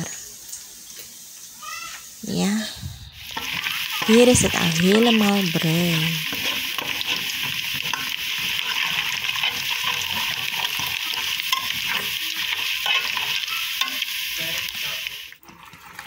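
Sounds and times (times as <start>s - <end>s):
onions frying and sizzling: 0.0s - 16.0s
spoon scraping pot bottom: 3.3s - 14.1s.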